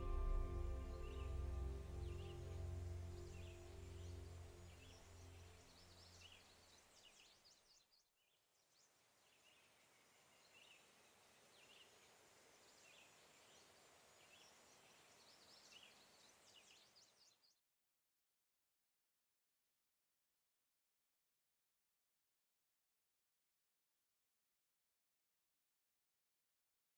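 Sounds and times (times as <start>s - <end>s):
background music: 0.0s - 5.2s.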